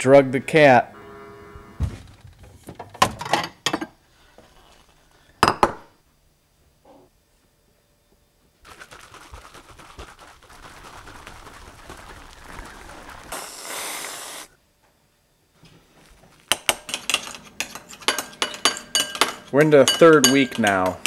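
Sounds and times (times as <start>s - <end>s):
handling noise with ticks: 8.6s - 13.4s
brief hiss: 13.3s - 14.6s
metal utensil clinking on glass: 16.8s - 21.0s.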